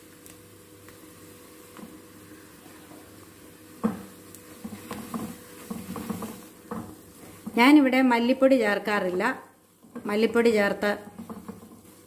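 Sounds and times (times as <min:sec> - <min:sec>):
food sizzling in oil: 0:00.0 - 0:12.0
wooden spatula scraping metal pan: 0:04.5 - 0:07.7, 0:10.8 - 0:12.0.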